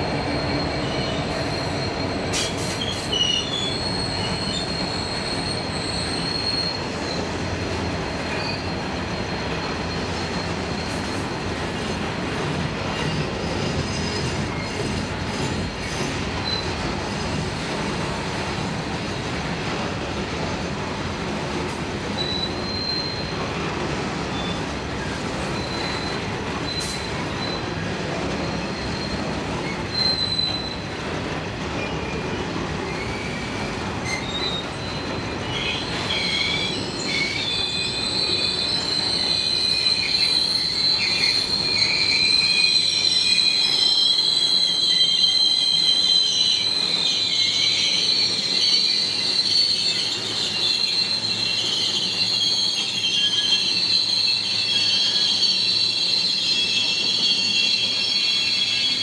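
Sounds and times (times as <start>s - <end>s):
train low rumble: 0.0s - 37.6s
train wheels squealing on rail: 0.0s - 59.0s.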